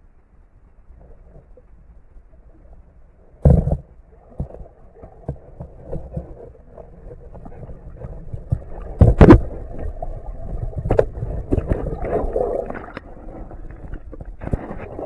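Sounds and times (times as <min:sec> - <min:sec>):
muffled underwater rumbling: 0:00.0 - 0:15.0
water splash and bubbles: 0:02.4 - 0:15.0.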